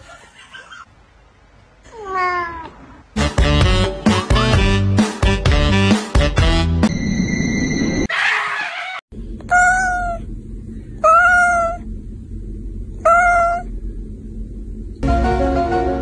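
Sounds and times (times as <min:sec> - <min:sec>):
cat meowing: 0:01.9 - 0:02.9, 0:09.5 - 0:10.2, 0:11.0 - 0:11.8, 0:13.0 - 0:13.7.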